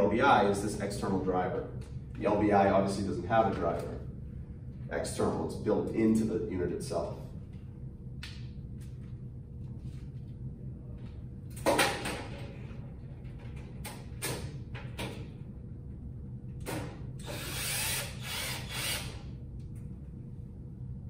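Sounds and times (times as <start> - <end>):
cordless drill driving screws: 17.2 - 19.2.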